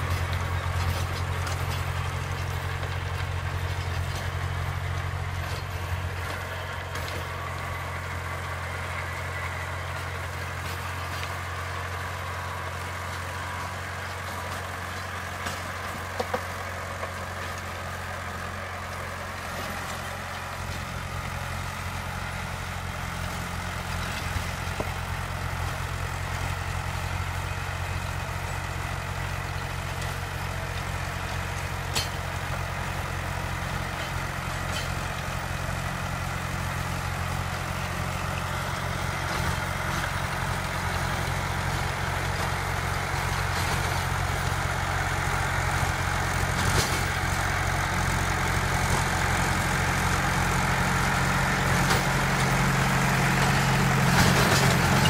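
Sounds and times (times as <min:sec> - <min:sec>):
rotary tiller working soil: 0:00.0 - 0:55.0
tractor diesel engine under load: 0:00.0 - 0:55.0.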